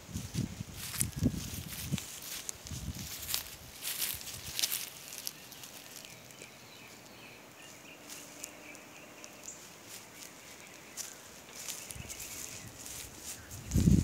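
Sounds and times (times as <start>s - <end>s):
footsteps in grass: 0.0s - 14.0s
distant wildlife chirring: 3.3s - 14.0s.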